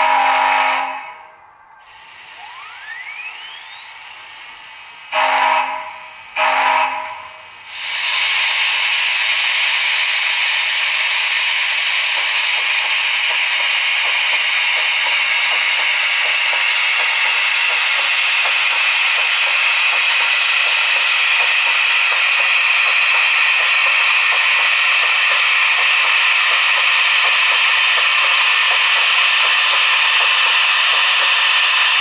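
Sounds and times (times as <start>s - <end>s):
steam locomotive whistle: 0.0s - 4.3s, 5.0s - 9.1s
rising whine: 1.5s - 5.2s
steam hissing: 1.9s - 32.0s.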